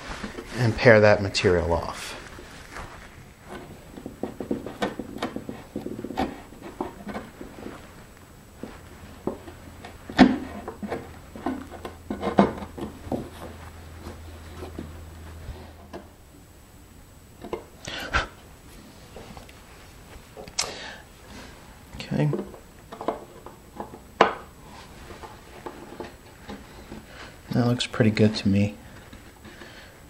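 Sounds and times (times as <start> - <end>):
chisel scraping wood: 3.4 - 7.7, 9.3 - 15.6.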